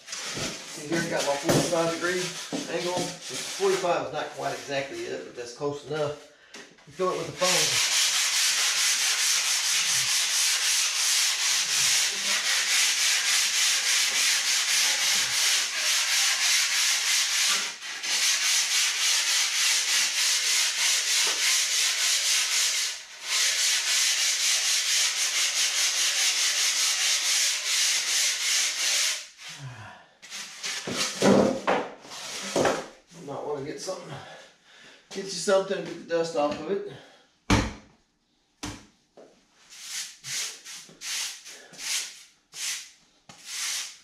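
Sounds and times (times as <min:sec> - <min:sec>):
sanding block scraping foam: 0:00.0 - 0:05.1, 0:06.9 - 0:29.4, 0:39.7 - 0:44.0.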